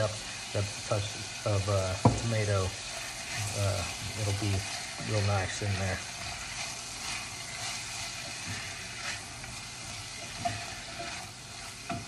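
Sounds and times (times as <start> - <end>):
food sizzling in a saucepan: 0.0 - 12.0
spatula scraping a pan: 1.6 - 12.0
tap against a pan: 2.0 - 2.3.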